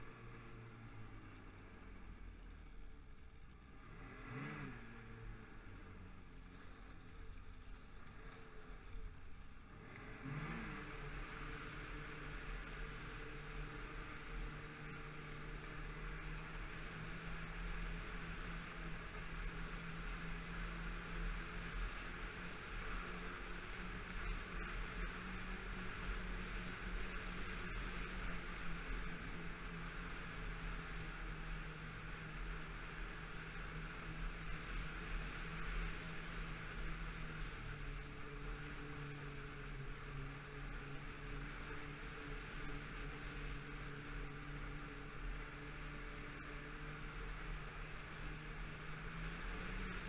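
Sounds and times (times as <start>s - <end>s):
snowmobile engine running: 0.0s - 50.0s.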